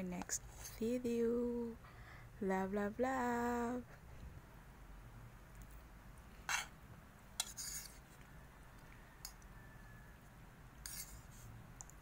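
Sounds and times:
fork scraping a plate: 6.5 - 6.7, 7.4 - 8.1, 10.8 - 11.5.

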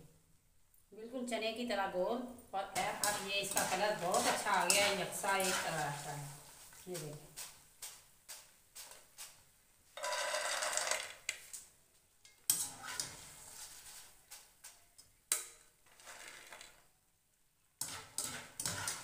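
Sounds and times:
frying oil hissing: 2.6 - 9.8, 17.8 - 19.0.

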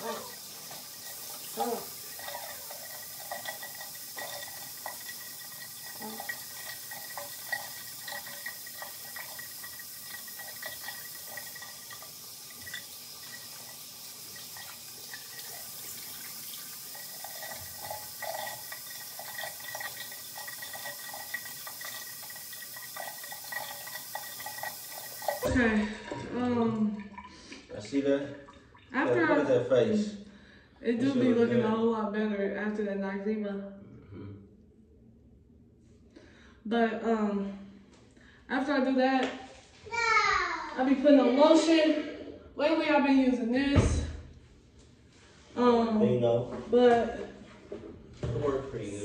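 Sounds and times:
tap running into sink: 0.0 - 26.3
water splashing: 0.0 - 29.2.

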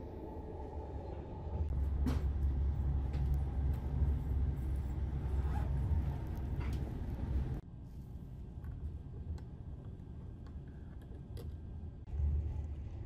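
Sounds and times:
train rumble from inside coach: 0.6 - 7.6.

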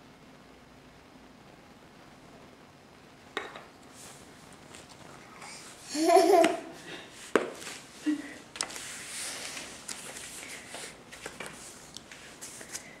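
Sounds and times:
soft rustle: 3.8 - 5.9, 7.1 - 13.0.

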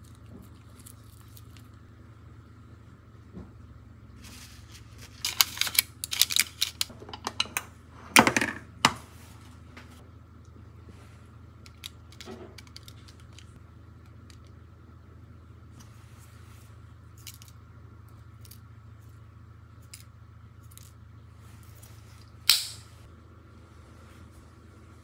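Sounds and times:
paper crinkling: 4.2 - 6.9.

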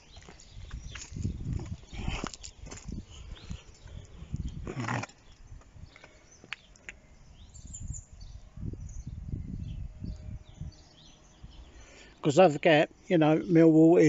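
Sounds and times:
wind rumble on microphone: 0.1 - 6.1, 7.1 - 11.8
faint bird chirps: 4.8 - 12.2.

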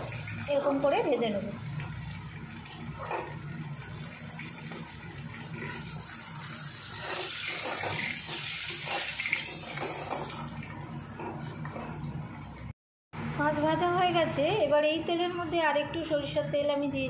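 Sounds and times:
oil sizzling: 0.0 - 12.7
metal spatula scraping pan: 6.7 - 10.3.

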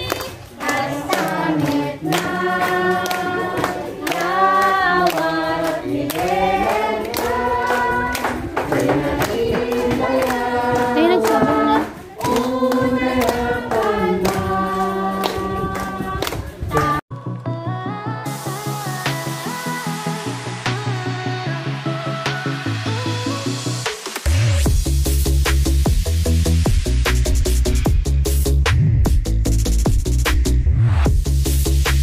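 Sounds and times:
hand claps: 0.0 - 17.0
group singing in unison: 0.5 - 17.0
electronic dance music: 10.5 - 12.2, 18.3 - 27.9.

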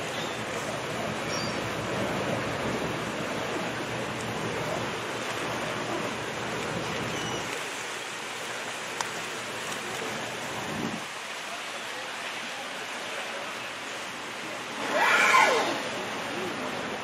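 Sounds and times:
sea lions splashing: 0.0 - 11.1
choppy sea churning: 0.0 - 17.0.

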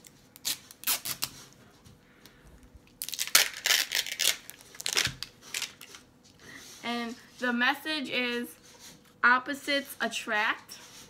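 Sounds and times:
plastic wrapping crinkling and tearing: 0.0 - 1.5, 2.9 - 6.0.

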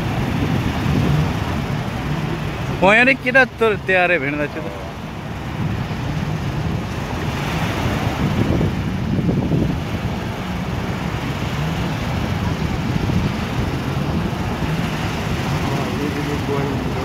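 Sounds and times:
jet ski engine running: 0.0 - 17.0
waves washing: 0.0 - 17.0
wind buffeting microphone: 0.0 - 17.0.

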